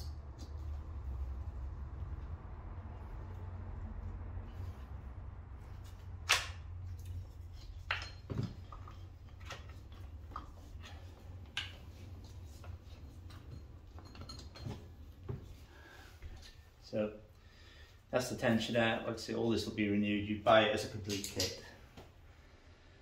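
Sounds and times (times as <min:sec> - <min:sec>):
low steady hum: 0:00.0 - 0:23.0
clicks and clinks of hand tools: 0:21.0 - 0:21.8.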